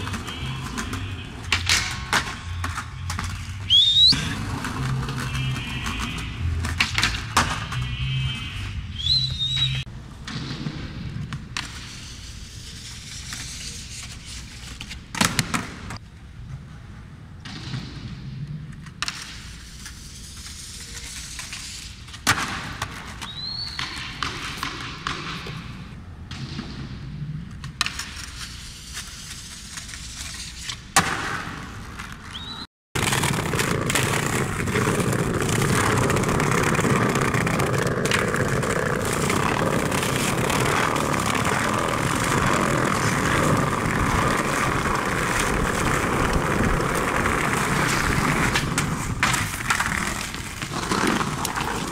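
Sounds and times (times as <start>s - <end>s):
skateboard clacking on concrete: 0.0s - 8.4s, 27.5s - 51.9s
skateboard wheels rolling on brick: 0.0s - 51.9s.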